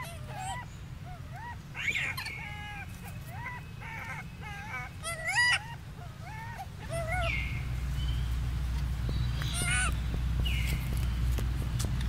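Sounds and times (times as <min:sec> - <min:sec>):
macaque coo calls: 0:00.0 - 0:07.7, 0:09.4 - 0:10.0
macaque shrill squeal: 0:01.4 - 0:07.4, 0:09.4 - 0:09.9.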